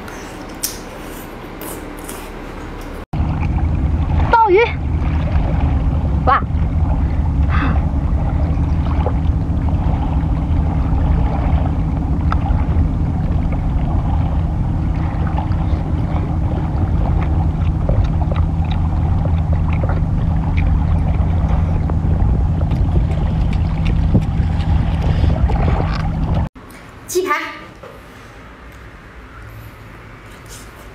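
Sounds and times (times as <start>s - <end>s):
boat engine droning: 3.1s - 26.5s.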